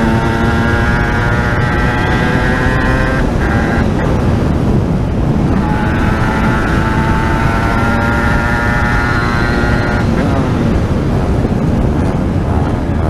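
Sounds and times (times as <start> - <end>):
motorcycle engine at high revs: 0.0 - 13.0
wind noise on camera: 0.0 - 13.0.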